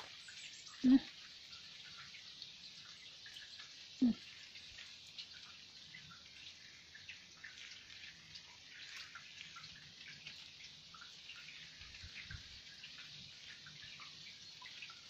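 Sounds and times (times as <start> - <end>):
light rain patter: 0.0 - 15.0.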